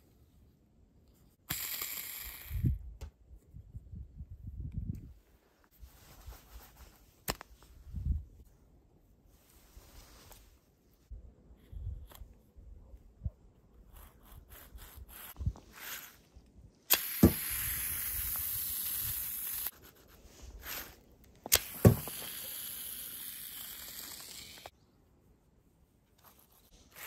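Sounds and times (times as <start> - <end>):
slingshot snap: 16.9 - 19.7, 21.4 - 24.7.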